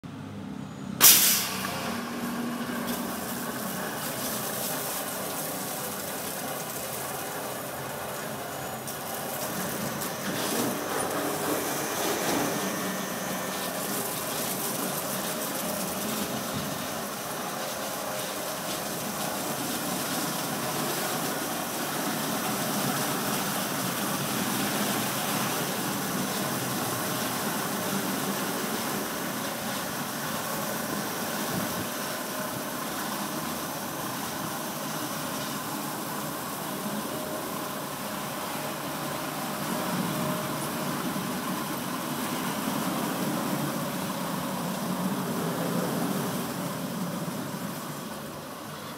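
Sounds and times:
water spray hissing: 1.0 - 37.0
car wash brushes humming: 1.1 - 48.9.

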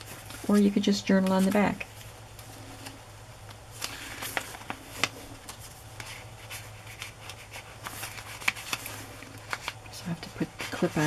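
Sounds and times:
low steady hum: 0.0 - 11.0
paper rustling and tapping: 3.4 - 11.0.

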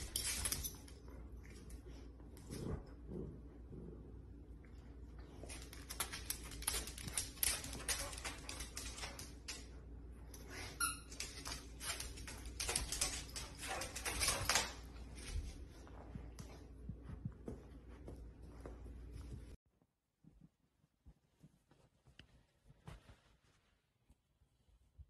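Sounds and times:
claws clicking on hard floor: 0.0 - 1.0, 5.4 - 9.8, 10.8 - 15.6.

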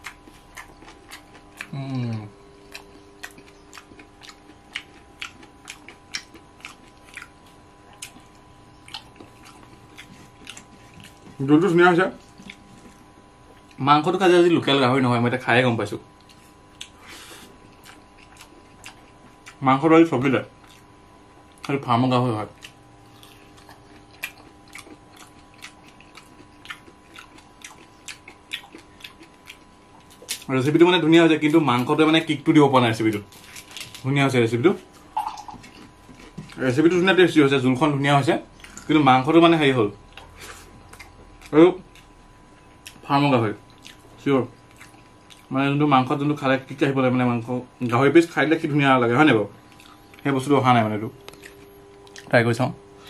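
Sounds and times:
person chewing food: 0.0 - 13.8, 16.1 - 19.7, 20.5 - 30.8, 33.0 - 34.1, 34.8 - 37.1, 38.5 - 39.0, 39.9 - 45.6, 49.6 - 50.3, 51.2 - 52.3
wet mouth clicks: 35.2 - 35.7.

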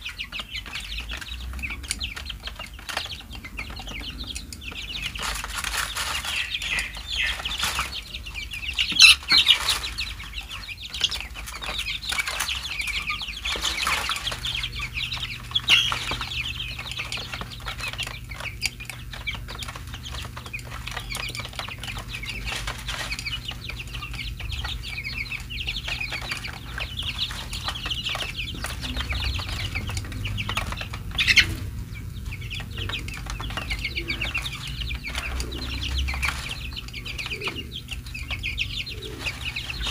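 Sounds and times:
beaks tapping on plastic tray: 0.0 - 39.9
chicks peeping: 0.0 - 39.9.

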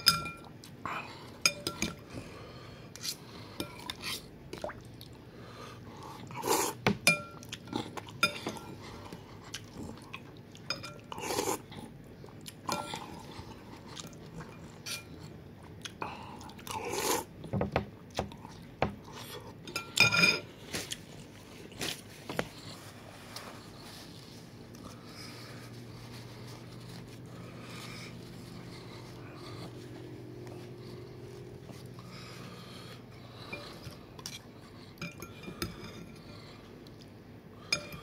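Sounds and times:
cutlery clinking on bowl: 0.0 - 0.5, 19.7 - 20.5
slurping and chewing noodles: 7.4 - 17.3.

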